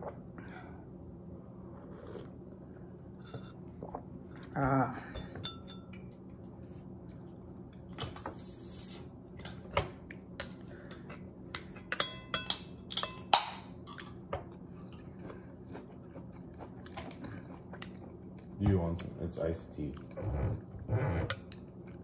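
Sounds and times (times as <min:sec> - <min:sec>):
metal spoon clinking on ceramic: 0:05.4 - 0:06.1, 0:11.9 - 0:13.6
chewing: 0:14.0 - 0:19.2.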